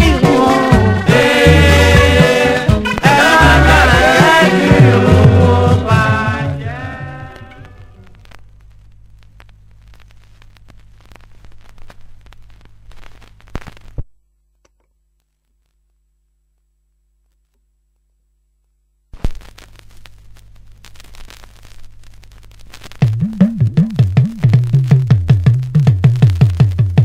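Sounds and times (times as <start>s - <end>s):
low hum: 0.0s - 13.5s
vinyl crackle and pops: 0.0s - 27.0s.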